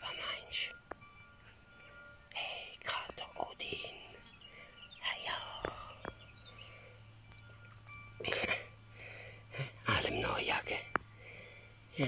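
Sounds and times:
person whispering: 0.0 - 0.8, 2.3 - 4.2, 5.0 - 6.0, 9.8 - 10.9.

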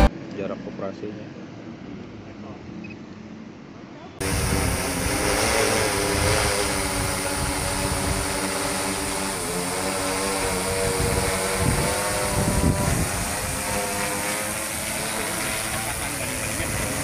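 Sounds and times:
drone propellers buzzing: 4.2 - 17.0.

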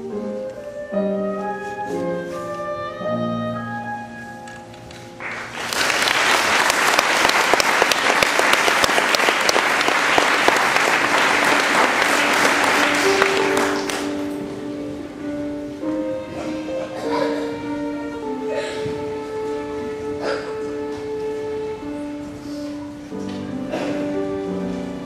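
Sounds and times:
instrumental music: 0.0 - 6.0, 11.0 - 25.0
audience applause: 5.2 - 14.3.

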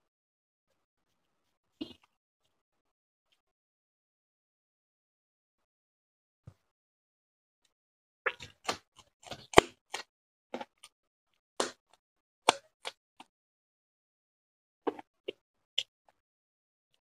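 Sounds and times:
biting and chewing food: 8.3 - 10.9.

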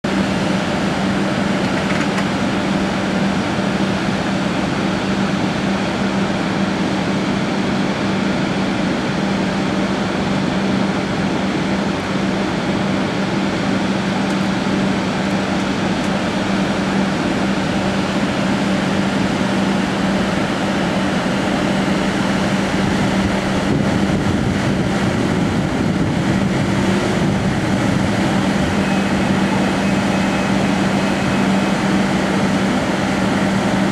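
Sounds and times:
belt conveyor running: 9.2 - 33.9.

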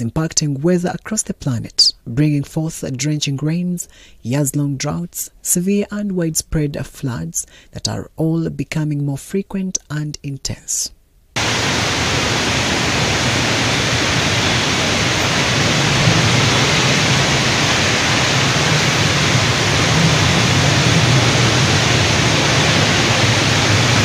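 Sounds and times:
heavy rain pouring: 11.4 - 24.0
low rumble: 11.4 - 24.0.

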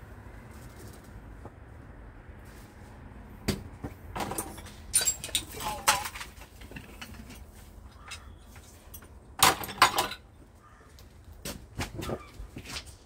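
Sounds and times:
metal hand tools clinking: 4.2 - 10.2.

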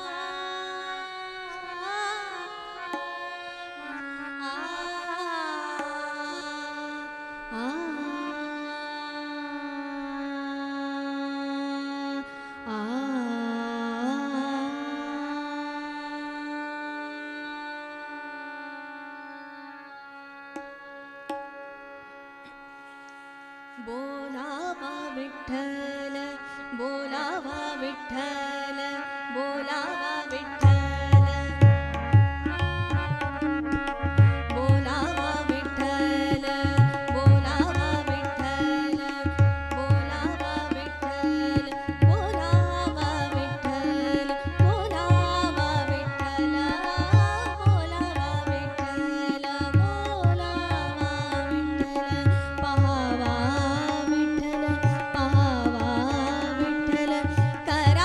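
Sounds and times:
woman singing: 0.0 - 20.0, 23.7 - 58.0
harmonium chords: 23.7 - 58.0
tabla drumming: 30.6 - 58.0.

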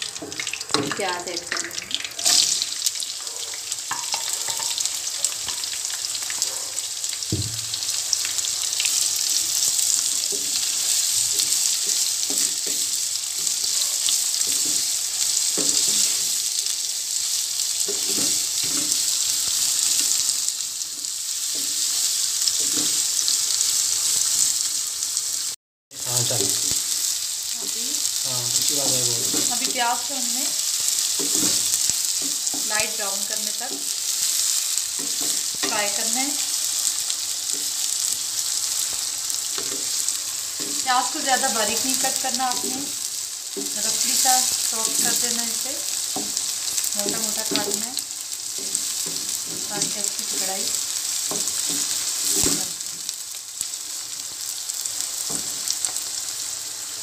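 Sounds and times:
onions sizzling in hot oil: 0.0 - 57.0
wooden spatula scraping a pan: 17.8 - 20.2.

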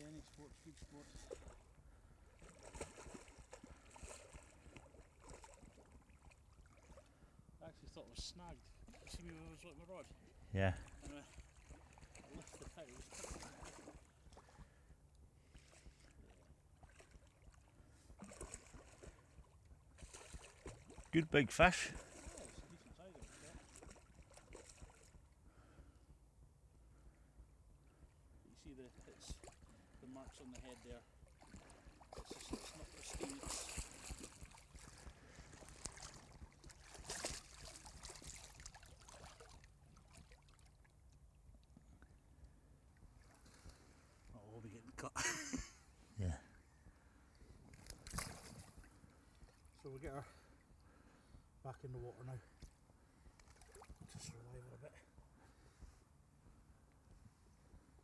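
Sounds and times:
fish splashing in water: 2.3 - 7.1, 16.8 - 21.1, 23.3 - 25.2, 31.4 - 40.9, 47.7 - 48.9.

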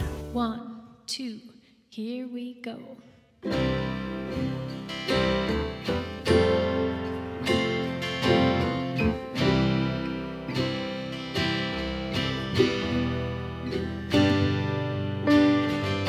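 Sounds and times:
strummed acoustic guitar chords: 3.4 - 16.0.

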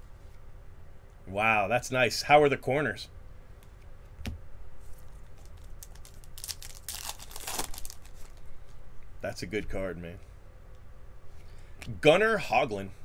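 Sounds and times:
crinkling card pack wrapping: 4.8 - 8.6.

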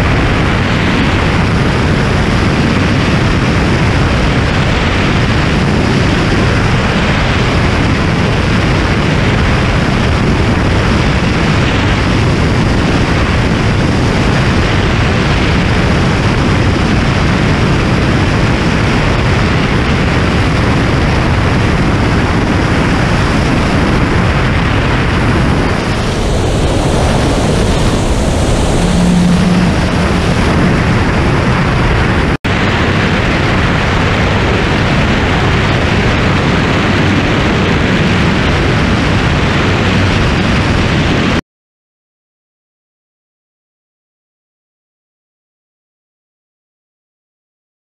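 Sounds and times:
rushing airflow: 0.0 - 41.4
light aircraft engine droning: 20.0 - 32.4.

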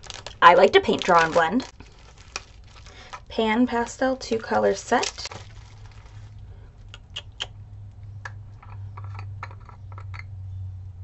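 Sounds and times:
bubble wrap rustling: 0.0 - 6.4
steady low hum: 0.0 - 11.0.

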